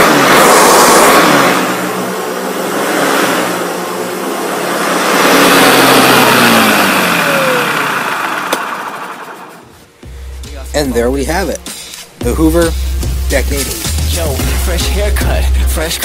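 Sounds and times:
vacuum cleaner whine: 0.0s - 9.7s.

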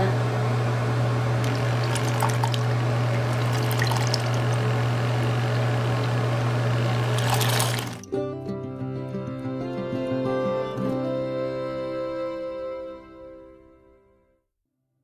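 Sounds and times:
brush cleaner motor hum: 0.0s - 8.0s
water swishing and splashing: 1.4s - 4.8s, 6.8s - 8.0s.

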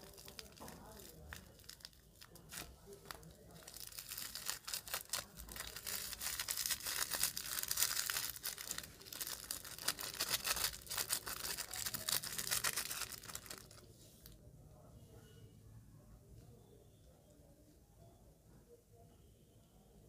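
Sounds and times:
plastic bag crinkling: 0.0s - 14.4s.

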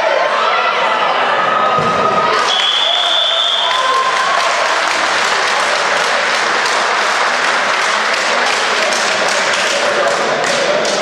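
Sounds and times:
crowd applauding: 2.2s - 11.0s.

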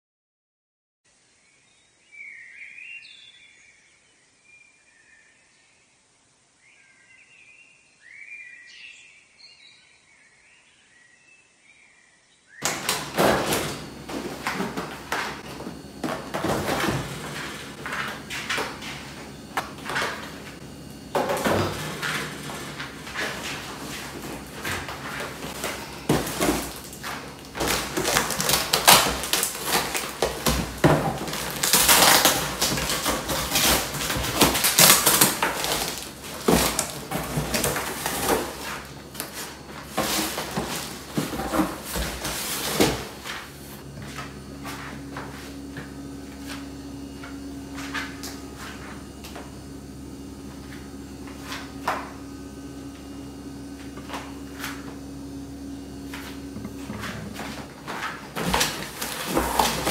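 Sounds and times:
steady low hum: 12.6s - 59.9s.

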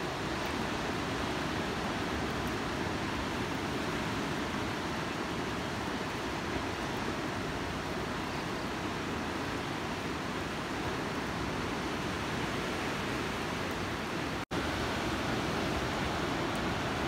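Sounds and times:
ocean surf breaking: 11.4s - 17.0s.

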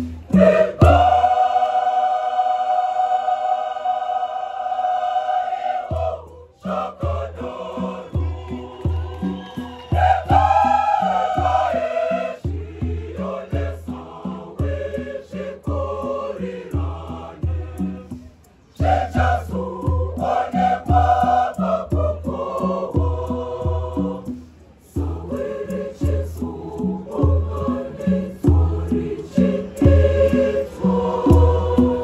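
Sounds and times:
choir singing in harmony: 0.0s - 32.0s
regular low beat: 10.0s - 32.0s.

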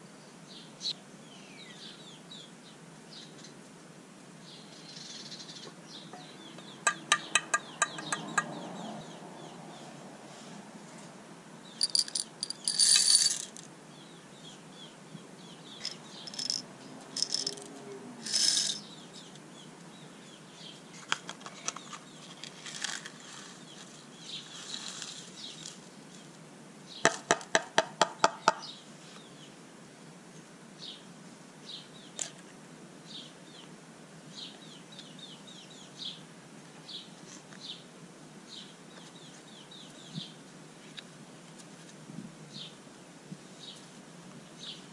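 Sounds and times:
plastic beads clicking in tub: 11.8s - 13.6s, 16.3s - 16.6s, 17.2s - 17.7s, 18.3s - 18.8s.

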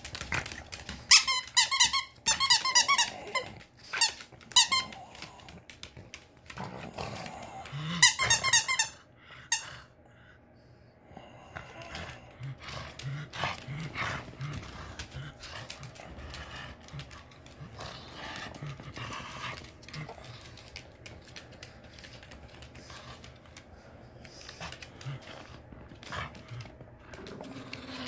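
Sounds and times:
dog growling: 2.8s - 3.8s, 6.5s - 8.2s, 11.2s - 20.8s, 24.4s - 28.0s.

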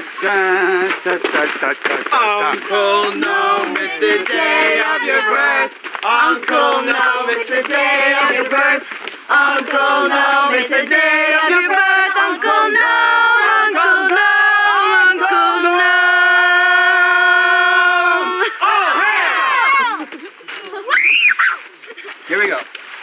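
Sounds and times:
young voices chanting in unison: 2.3s - 20.1s.

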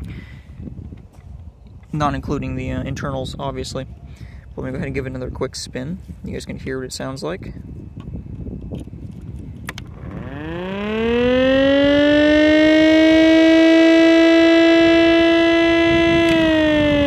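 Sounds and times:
siren wailing: 9.9s - 17.0s.

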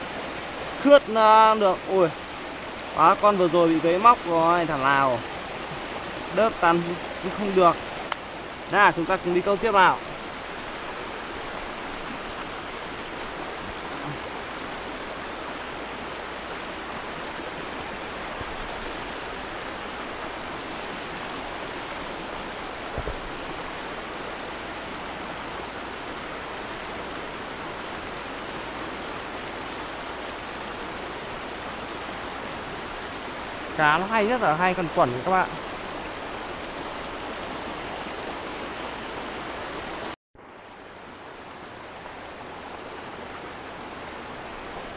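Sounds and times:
stream rushing over stones: 0.0s - 44.9s
brief thump: 22.9s - 23.4s.

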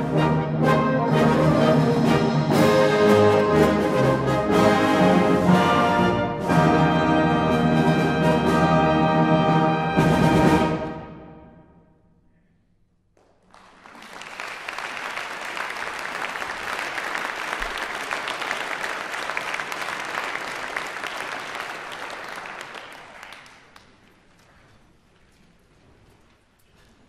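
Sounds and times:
audience applauding: 13.2s - 24.8s.

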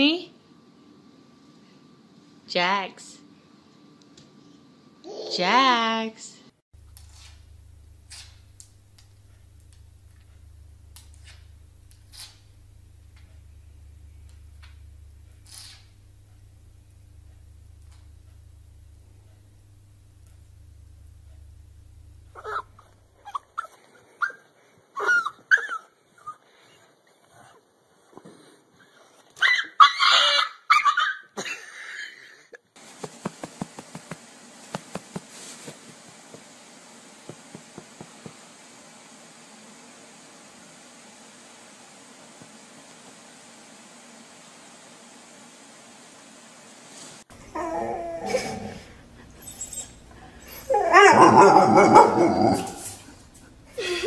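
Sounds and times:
faint steady hiss: 0.0s - 25.0s, 32.2s - 54.0s
small dog whining and yelping: 22.4s - 26.4s, 29.4s - 31.3s, 49.4s - 52.8s.

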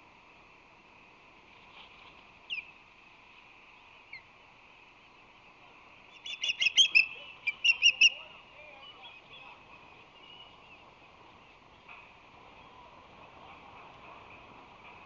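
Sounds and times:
osprey chirping: 6.1s - 10.9s.

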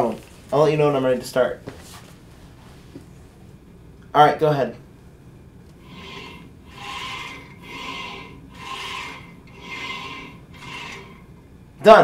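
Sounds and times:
plate rasping along a track: 5.7s - 11.5s.

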